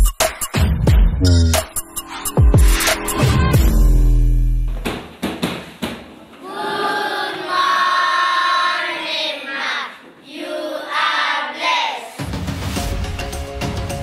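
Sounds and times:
backing music with deep bass: 0:00.0 - 0:04.8
children singing in unison: 0:06.4 - 0:12.2.

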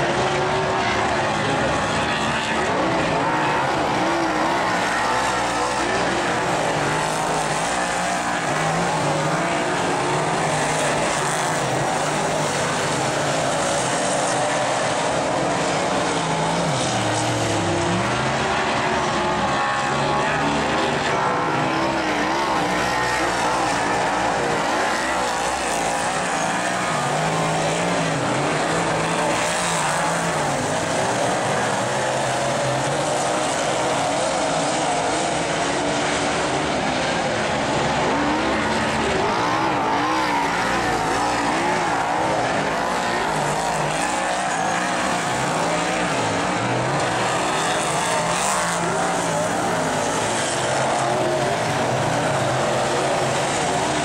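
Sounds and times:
race car engines running hard: 0:00.0 - 0:54.0.

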